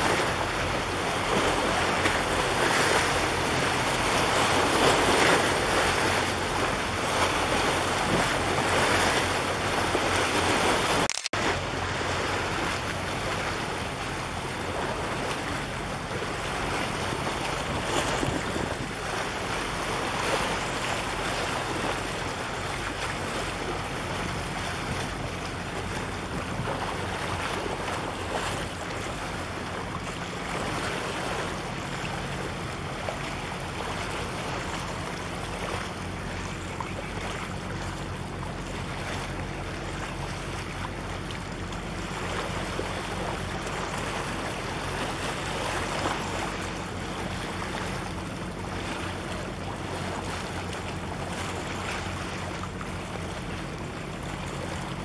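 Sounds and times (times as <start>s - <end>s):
waves splashing on concrete: 0.0s - 55.0s
wind buffeting microphone: 16.7s - 20.6s.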